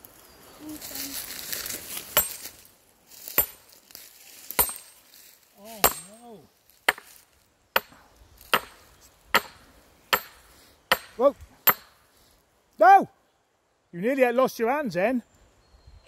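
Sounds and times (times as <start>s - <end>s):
sledgehammer clanking on steel wedges: 3.3s - 3.7s, 4.5s - 5.0s, 5.8s - 6.3s, 7.8s - 12.0s.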